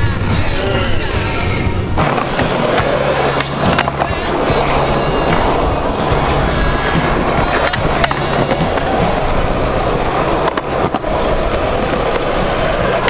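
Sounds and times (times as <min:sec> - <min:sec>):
skateboard clacks: 0:00.0 - 0:13.0
skateboard wheels rolling on concrete: 0:00.0 - 0:13.0.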